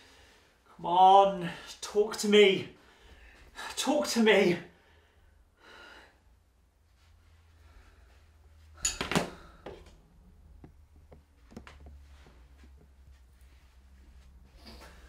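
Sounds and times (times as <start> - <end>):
soft breath: 4.8 - 10.1.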